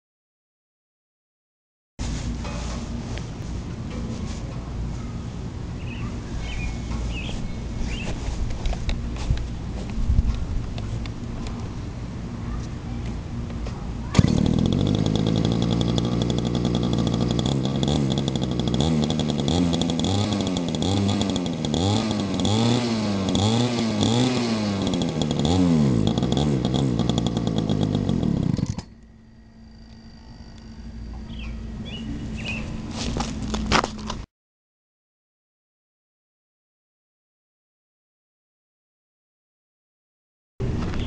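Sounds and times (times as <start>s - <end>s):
two-stroke engine revving: 14.1s - 28.9s.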